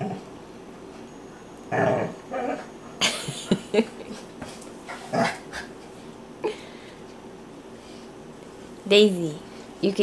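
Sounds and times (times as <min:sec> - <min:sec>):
dogs growling: 0:01.7 - 0:02.8, 0:04.9 - 0:05.8.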